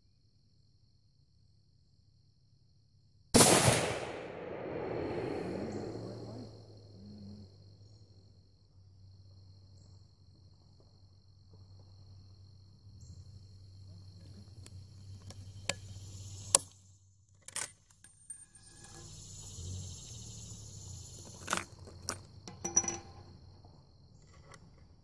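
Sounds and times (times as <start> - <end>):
rifle shot: 3.4 - 6.3.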